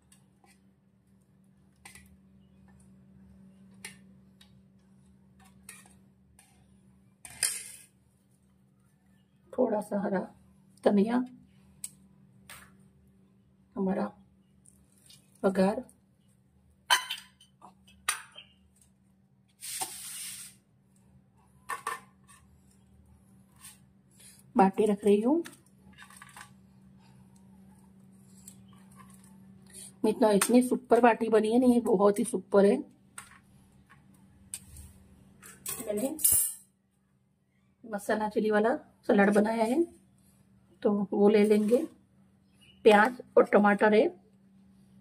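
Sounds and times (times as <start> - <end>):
short hiss: 19.6 - 20.6.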